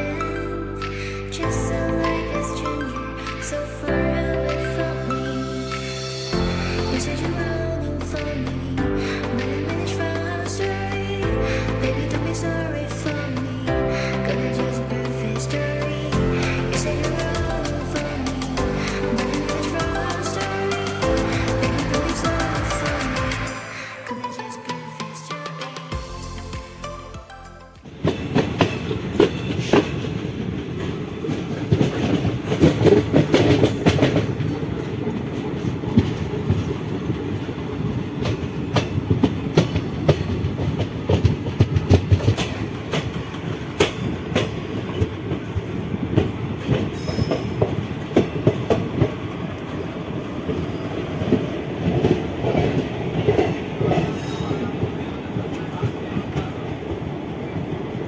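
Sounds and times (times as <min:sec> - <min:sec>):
train wheels clattering on rails: 0:27.9 - 0:58.0.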